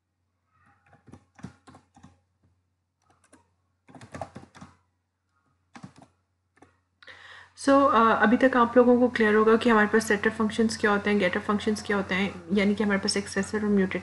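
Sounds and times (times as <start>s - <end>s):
keyboard typing clicks: 0.8s - 4.8s, 5.7s - 6.8s.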